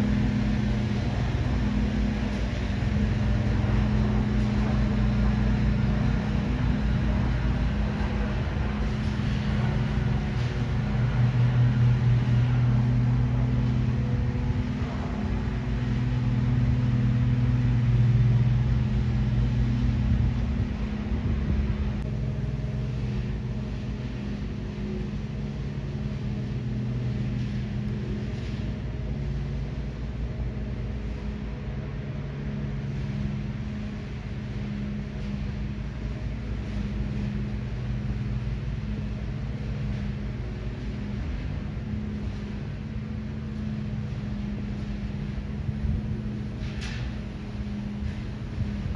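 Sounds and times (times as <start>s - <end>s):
jet airliner passing overhead: 0.0s - 38.3s.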